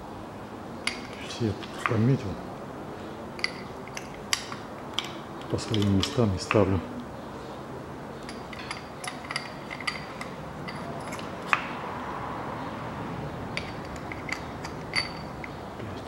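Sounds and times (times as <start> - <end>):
small metal clinks and taps: 0.8 - 2.0, 3.4 - 6.7, 8.2 - 11.7, 13.6 - 15.6.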